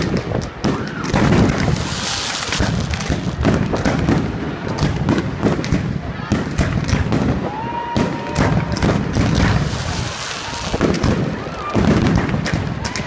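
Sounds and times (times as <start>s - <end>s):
fireworks bangs and crackles: 0.0s - 13.0s
fireworks hiss: 1.4s - 3.8s, 9.0s - 12.4s.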